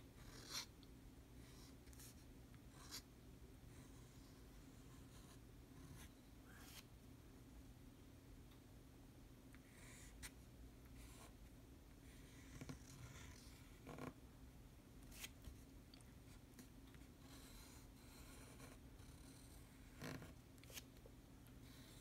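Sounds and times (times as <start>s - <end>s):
low room hum: 0.0s - 22.0s
pen nib scratching paper: 17.2s - 20.8s.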